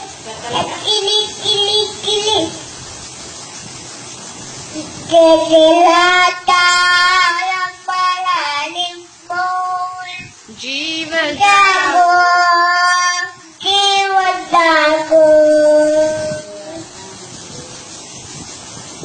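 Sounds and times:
child singing a chant: 0.0 - 2.7, 4.7 - 17.1
steady hiss: 0.0 - 19.0.

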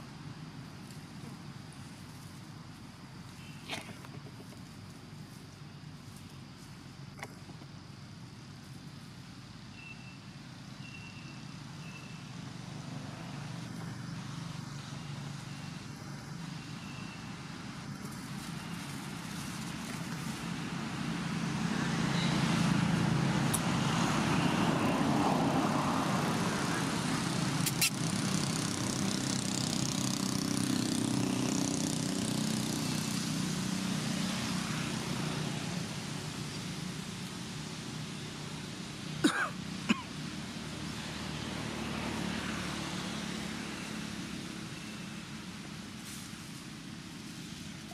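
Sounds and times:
distant vehicle passing: 20.4 - 38.7, 40.2 - 45.8.

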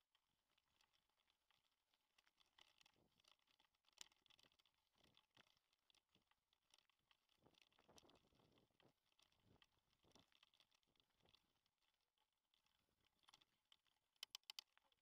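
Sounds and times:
bike clicks and rattles: 2.2 - 6.0, 6.7 - 11.4, 14.2 - 14.8.

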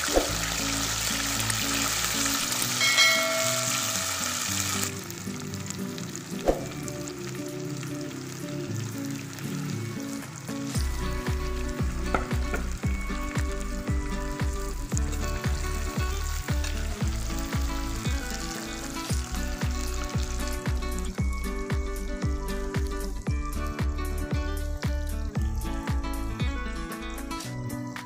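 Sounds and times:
fries sizzling in oil: 0.0 - 28.0
music with beat and bass: 10.5 - 28.0.

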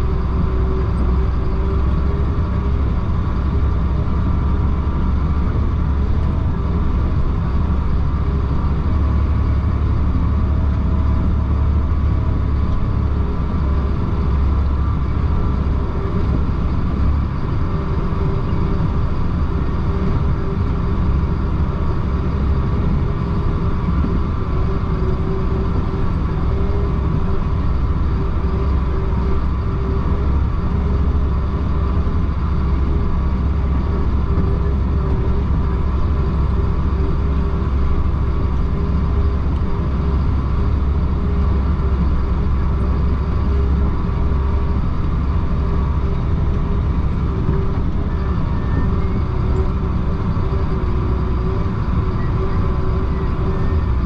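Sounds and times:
diesel truck engine from cab: 0.0 - 54.0.

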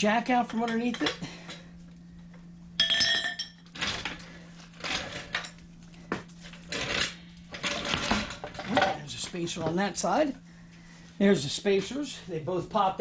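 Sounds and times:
metal clinks and clatter: 2.8 - 3.7.

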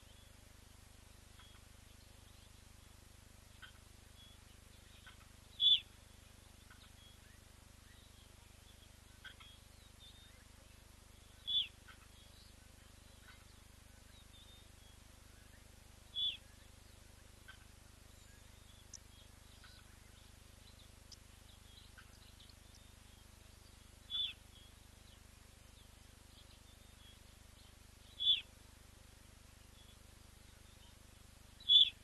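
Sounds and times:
faint bird chirping: 0.0 - 32.0.

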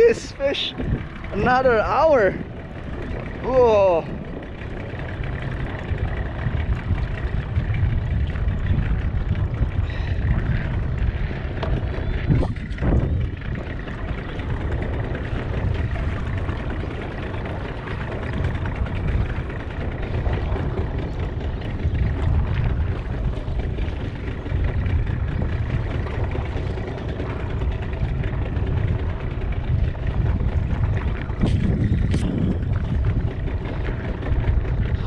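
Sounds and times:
boat rumble and hiss: 0.0 - 35.0
wind buffeting microphone: 0.0 - 35.0.

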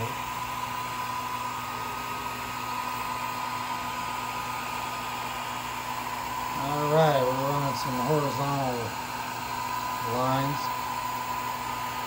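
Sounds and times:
airy pump and fan whir: 0.0 - 12.0
thin steady whine: 0.0 - 12.0.

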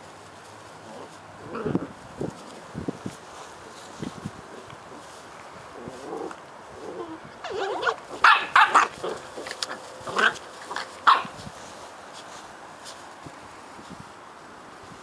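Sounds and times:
puppies growling: 0.8 - 2.6, 5.7 - 11.3
puppies yapping and barking: 7.0 - 11.4.

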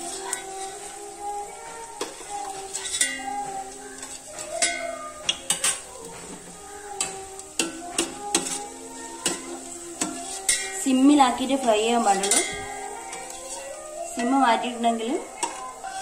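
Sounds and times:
light sizzle: 0.0 - 16.0
metal spoon scraping steel pan: 2.0 - 5.9, 10.0 - 14.4.

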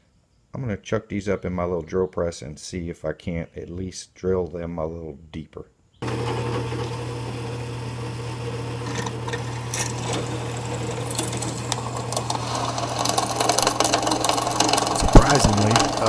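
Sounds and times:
drill press motor hum: 6.0 - 16.0
drill bit scraping into steel: 8.8 - 16.0.

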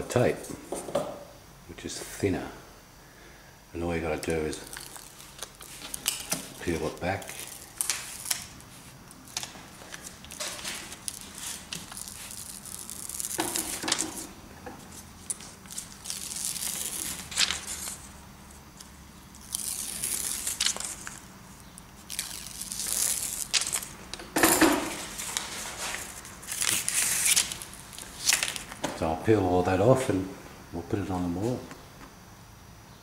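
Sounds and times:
backing paper peeled off tape: 4.2 - 18.2, 18.8 - 24.0, 25.0 - 28.8.

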